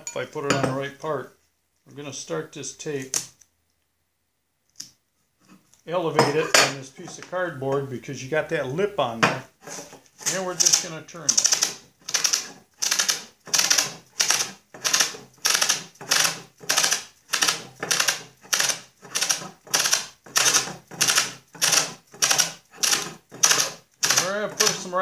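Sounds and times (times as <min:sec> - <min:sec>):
masking tape tearing off roll: 0:09.6 - 0:25.0.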